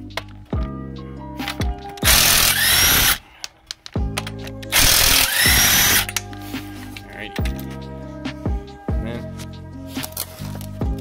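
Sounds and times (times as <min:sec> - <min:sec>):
background music: 0:00.0 - 0:11.0
impact wrench whining: 0:02.0 - 0:03.2, 0:04.7 - 0:06.2.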